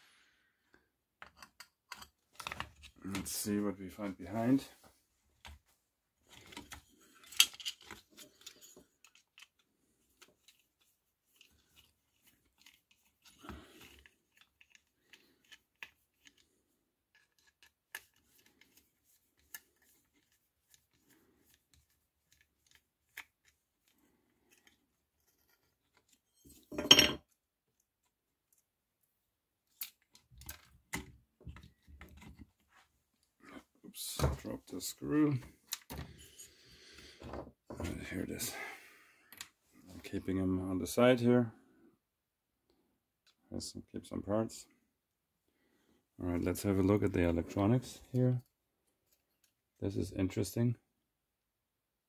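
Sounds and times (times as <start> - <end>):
clicks and plastic handling: 1.2 - 3.4.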